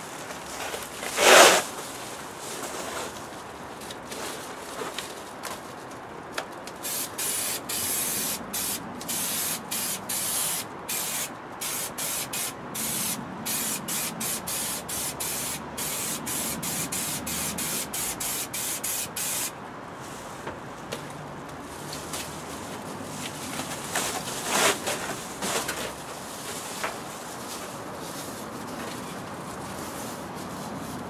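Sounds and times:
aerosol can hissing bursts: 6.8 - 19.5.

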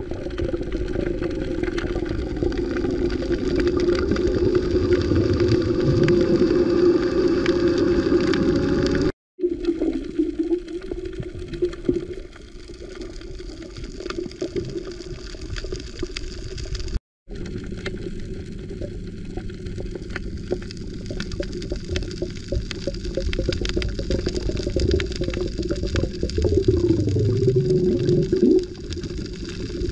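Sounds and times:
underwater boat engine hum: 0.0 - 9.1, 16.8 - 29.9.

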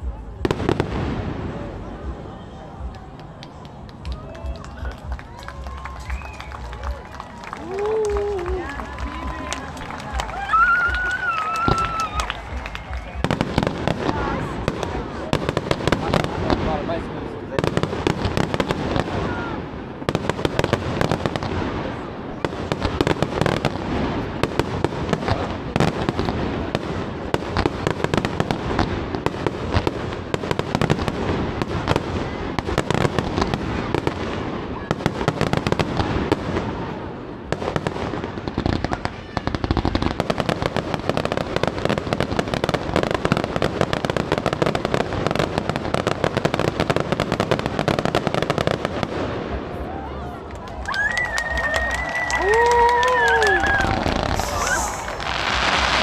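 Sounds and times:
fireworks bangs and crackles: 0.0 - 56.0.

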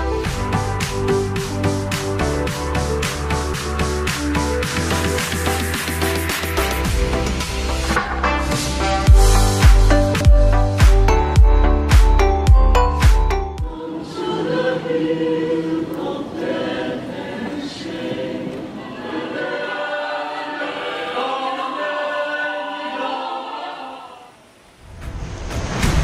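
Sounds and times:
mixed choir singing: 13.6 - 24.6.

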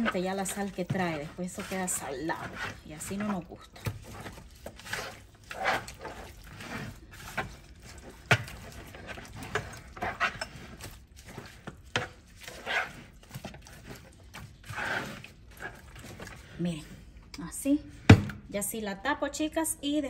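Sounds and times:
squishing and rustling food: 0.0 - 18.5.

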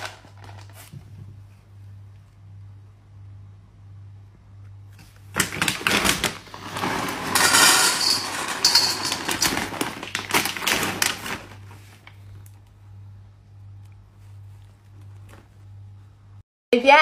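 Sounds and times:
kibble poured into metal bowl: 6.4 - 11.6.

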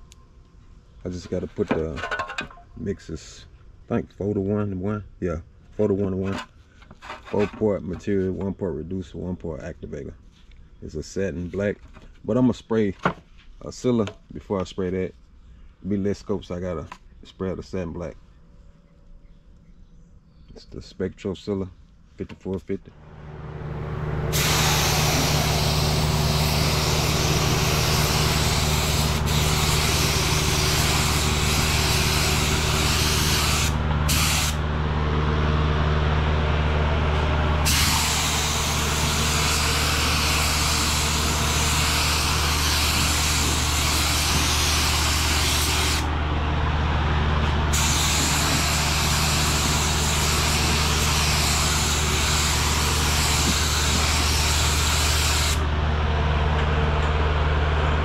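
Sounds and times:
low hum: 22.9 - 50.0, 55.5 - 58.0
spray gun hissing: 24.3 - 34.6, 37.6 - 46.1, 47.7 - 55.6.

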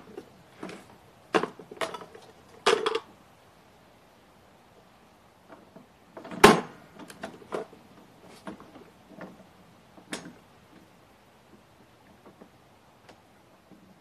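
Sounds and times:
knocks and clatters of parts: 0.1 - 3.1, 5.5 - 10.9.

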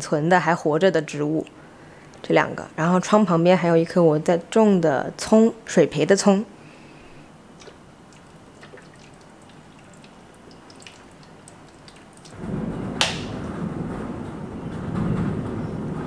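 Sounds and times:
water dripping and trickling: 7.5 - 12.4.

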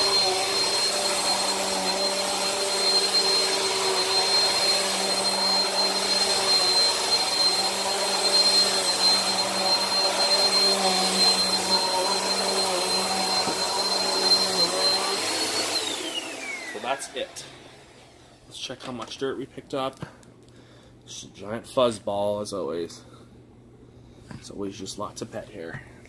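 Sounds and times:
vacuum cleaner running on carpet: 0.0 - 18.2.

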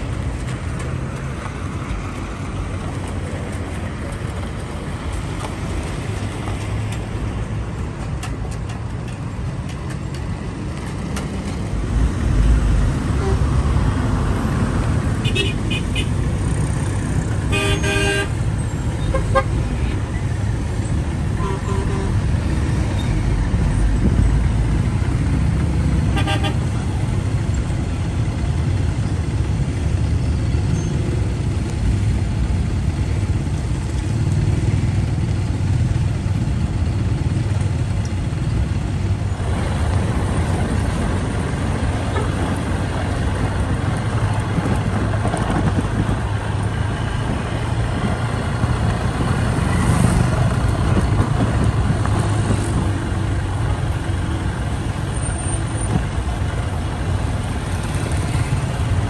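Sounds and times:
road traffic rumbling: 0.0 - 59.0
vehicle horn toot: 15.2 - 16.1, 17.5 - 18.3, 21.4 - 22.1, 26.1 - 26.6.

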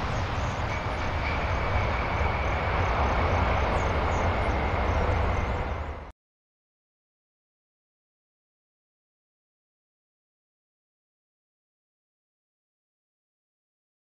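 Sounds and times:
jet engine rumble: 0.0 - 6.1.

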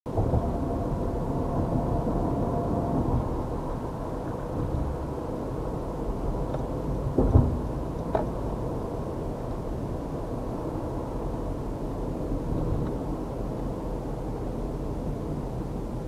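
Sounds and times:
car cabin road rumble: 0.1 - 16.0
thump: 7.2 - 8.3.

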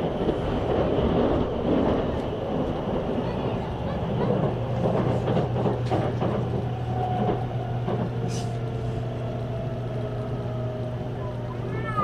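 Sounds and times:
electric train running: 0.0 - 12.0
knocks of train: 3.9 - 8.4.

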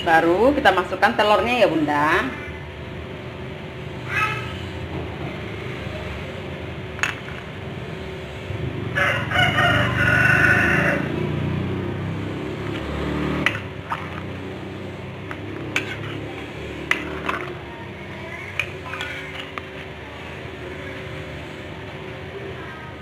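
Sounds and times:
rooster crowing: 8.9 - 11.3.

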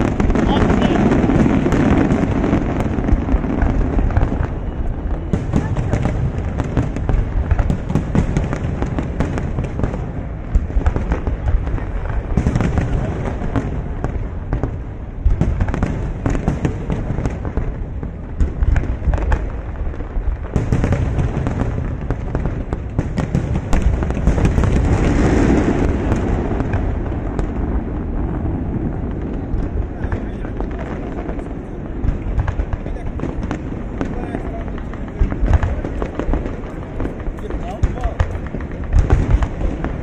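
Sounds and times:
fireworks bangs and crackles: 0.0 - 40.0.

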